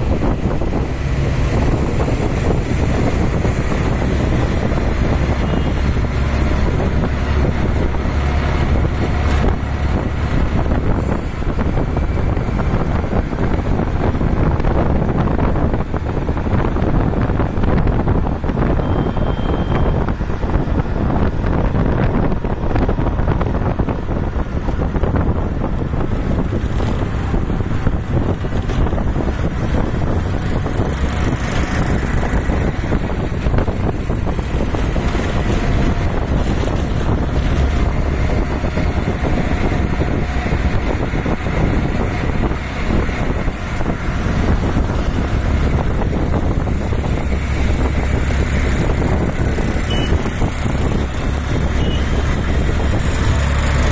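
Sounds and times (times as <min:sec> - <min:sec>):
rickshaw engine rumble: 0:00.0 - 0:53.9
road noise in traffic: 0:00.0 - 0:53.9
wind buffeting microphone: 0:00.0 - 0:53.9.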